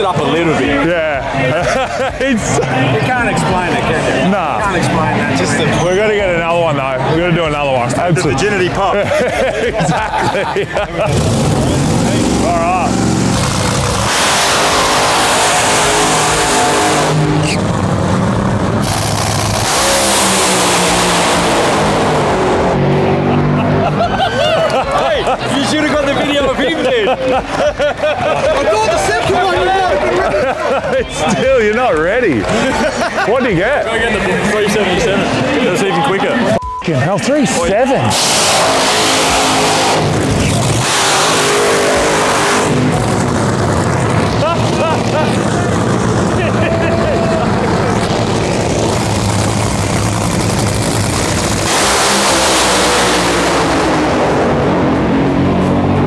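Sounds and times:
dragster engine roaring: 0:00.0 - 0:36.5, 0:37.3 - 0:56.0.

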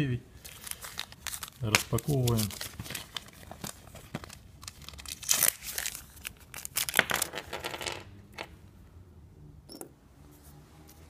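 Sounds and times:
packet tearing and crinkling: 0:00.4 - 0:07.3.

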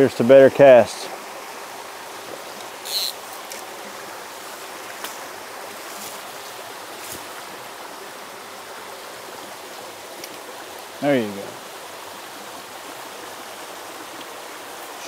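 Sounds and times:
creek running over rocks: 0:00.0 - 0:15.0
brief hiss: 0:02.8 - 0:03.2.

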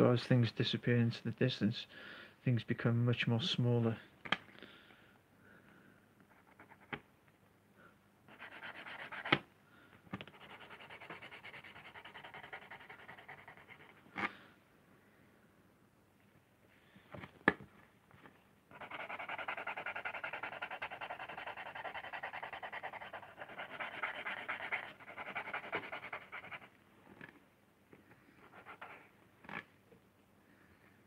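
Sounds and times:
pencil scribbling on lino: 0:08.3 - 0:09.4, 0:10.3 - 0:14.1, 0:18.7 - 0:26.7, 0:28.4 - 0:29.1.

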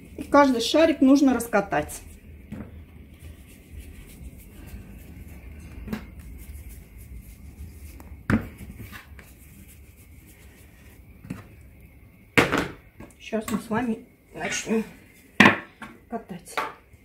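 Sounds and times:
hands rolling dough: 0:00.0 - 0:11.9
dough ball knocking into bowl: 0:12.4 - 0:12.8.

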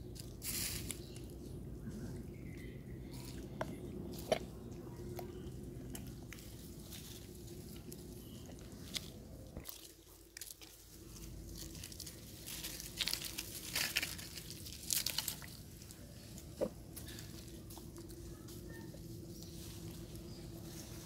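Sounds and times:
dry leaves crackling and rustling: 0:00.0 - 0:21.0.

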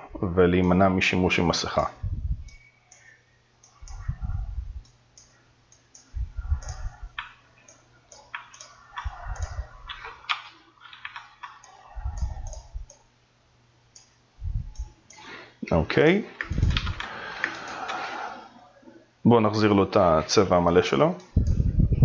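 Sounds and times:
dull low thumps: 0:02.0 - 0:02.5, 0:14.4 - 0:14.9, 0:16.4 - 0:17.0, 0:21.4 - 0:22.0
computer mouse clicking: 0:02.4 - 0:13.1, 0:13.9 - 0:14.1, 0:16.4 - 0:18.4.

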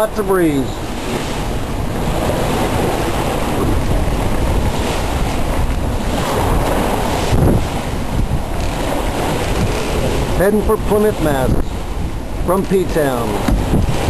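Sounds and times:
water rushing along hull: 0:00.0 - 0:14.0
wind buffeting microphone: 0:00.0 - 0:14.0.

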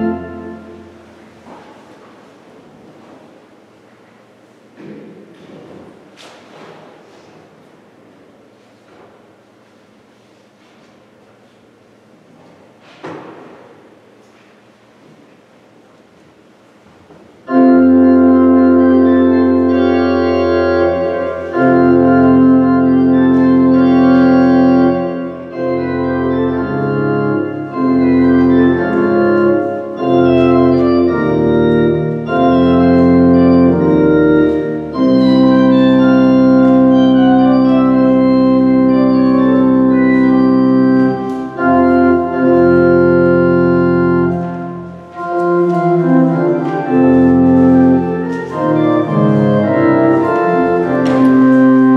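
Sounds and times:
church organ playing chords: 0:00.0 - 0:01.9, 0:17.4 - 0:51.9.

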